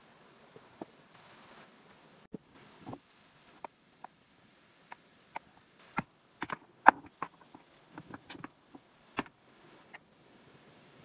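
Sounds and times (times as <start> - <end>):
stones knocking together: 5.4 - 9.4.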